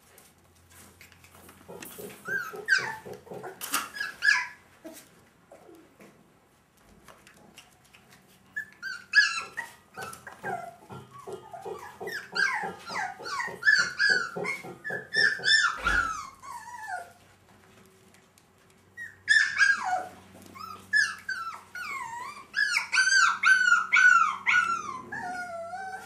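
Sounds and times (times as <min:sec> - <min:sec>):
puppies whining and yelping: 0:01.7 - 0:06.0, 0:08.5 - 0:17.3, 0:18.9 - 0:26.0.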